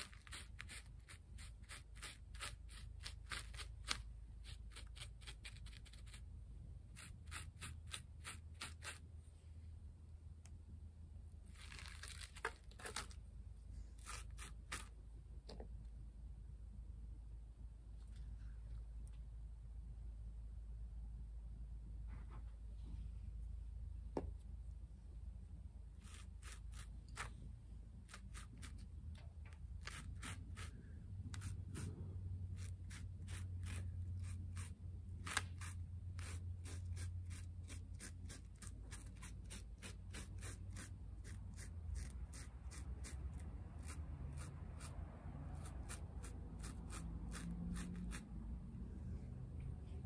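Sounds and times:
clicks and scrapes on foam: 0.0s - 6.3s, 6.9s - 9.1s, 11.5s - 13.2s, 14.0s - 15.0s, 26.0s - 48.3s
faint low hum: 0.0s - 50.0s.

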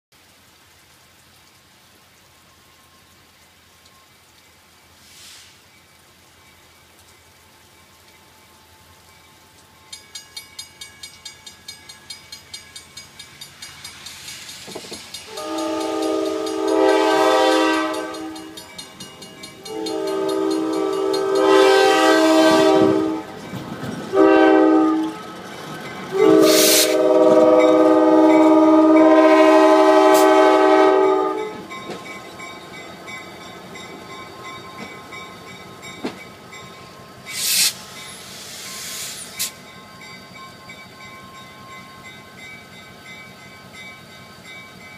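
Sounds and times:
crossing warning bell ringing: 7.7s - 44.9s
locomotive air horn: 15.3s - 18.6s, 19.6s - 23.4s, 24.1s - 25.2s, 26.1s - 31.7s.

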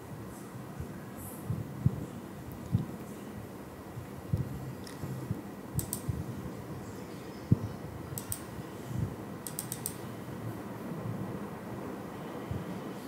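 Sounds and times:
computer mouse clicking: 5.8s - 6.1s, 8.2s - 8.5s, 9.4s - 10.0s.

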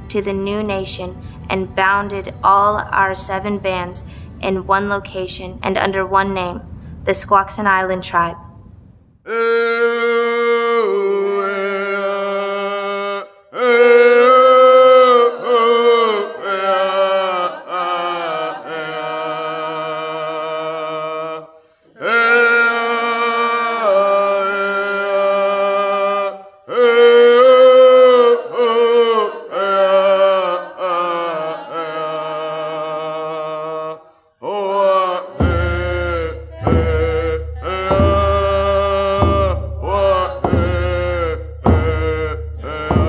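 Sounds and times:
person singing a chant: 9.3s - 43.0s.

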